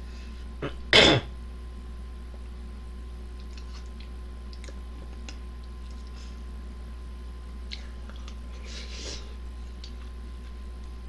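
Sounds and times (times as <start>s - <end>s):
man chewing noodles: 7.7s - 8.6s.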